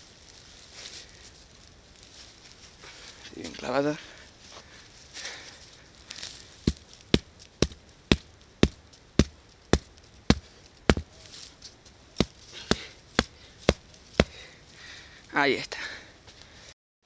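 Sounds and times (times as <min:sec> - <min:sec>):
stone hammering wooden stake: 0:06.6 - 0:11.2, 0:12.2 - 0:14.4.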